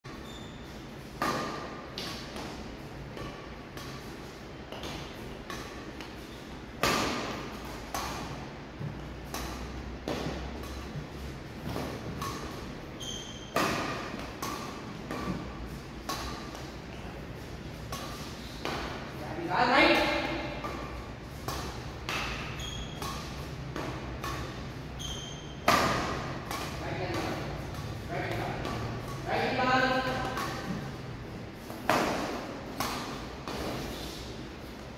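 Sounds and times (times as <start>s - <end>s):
racket striking shuttlecock: 1.0s - 4.1s, 4.7s - 16.8s, 17.7s - 31.0s, 31.6s - 34.9s.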